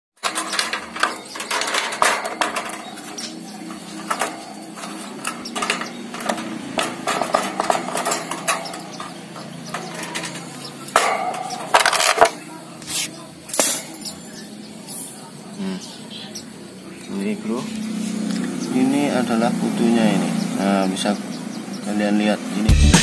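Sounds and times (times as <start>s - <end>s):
wire bird cage clattering: 0.2s - 15.4s
steady low hum: 0.3s - 21.8s.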